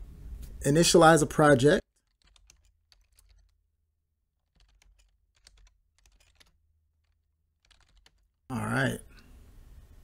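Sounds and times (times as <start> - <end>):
keyboard keystrokes: 2.0 - 3.6, 4.4 - 8.3.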